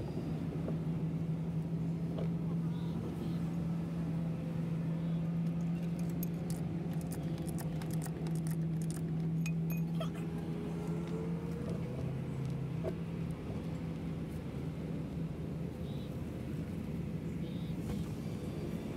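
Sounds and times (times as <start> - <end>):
low engine hum: 0.0 - 18.9
metallic clinks and rattles: 5.8 - 10.0.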